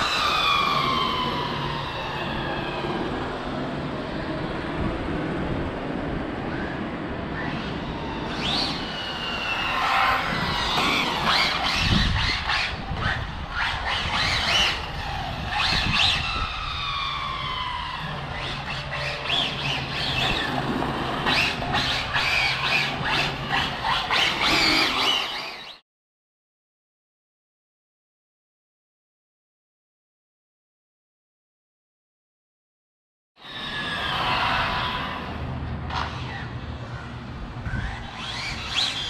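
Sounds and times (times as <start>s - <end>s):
electric motors whining: 6.5s - 25.8s, 33.4s - 39.0s.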